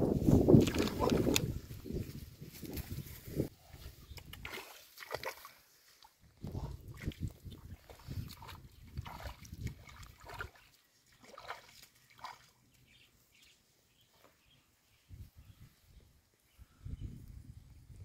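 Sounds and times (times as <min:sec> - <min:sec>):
feet splashing through muddy water: 0:00.4 - 0:01.5, 0:04.1 - 0:12.7.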